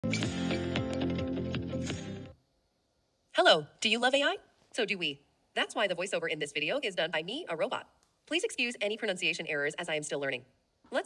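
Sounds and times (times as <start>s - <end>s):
music with steady beat: 0.0s - 2.3s.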